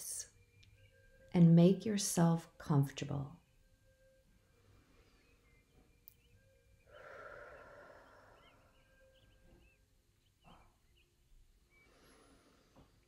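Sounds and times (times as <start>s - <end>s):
soft breath into microphone: 6.8s - 9.5s, 11.7s - 13.0s.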